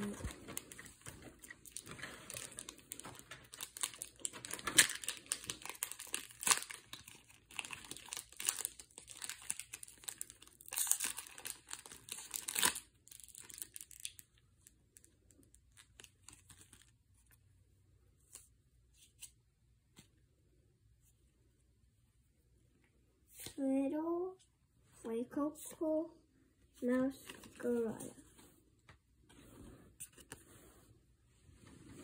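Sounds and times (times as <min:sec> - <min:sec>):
foil wrapper tearing and crinkling: 0:01.6 - 0:14.3
faint handling sounds: 0:24.4 - 0:32.0.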